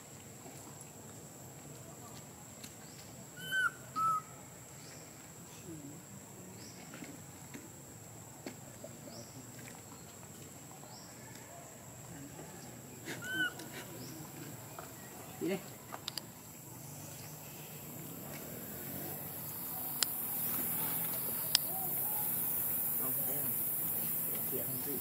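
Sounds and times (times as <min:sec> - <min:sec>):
monkey coo calls: 0:03.4 - 0:04.3, 0:13.0 - 0:14.4, 0:19.8 - 0:22.6.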